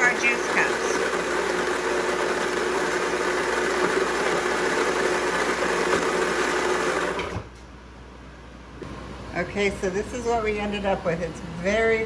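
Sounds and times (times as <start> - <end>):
electric blender motor running: 0.0 - 7.4.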